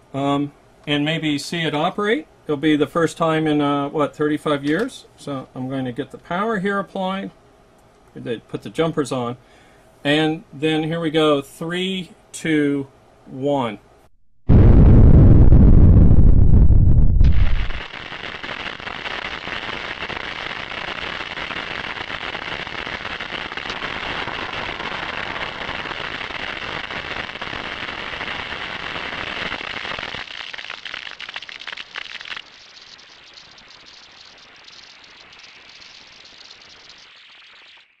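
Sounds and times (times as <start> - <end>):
quiet hiss: 0.0 - 14.1
crackling and sizzling: 14.5 - 38.0.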